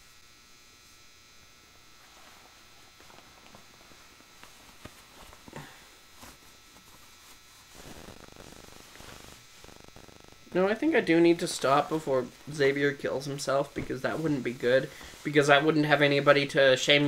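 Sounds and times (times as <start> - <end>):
fabric rustling: 1.7 - 9.8, 11.3 - 16.3.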